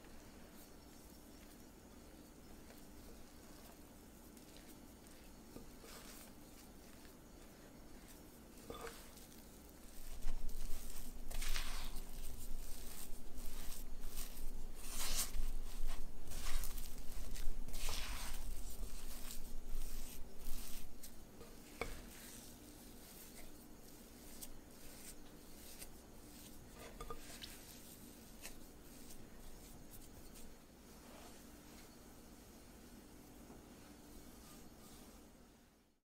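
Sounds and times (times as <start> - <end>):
spatula scraping dough in glass bowl: 0.5 - 31.9, 33.9 - 35.3.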